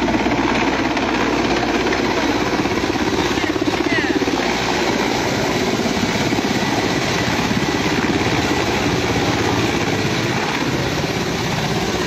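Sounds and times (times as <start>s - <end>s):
helicopter rotor chopping: 0.0s - 12.0s.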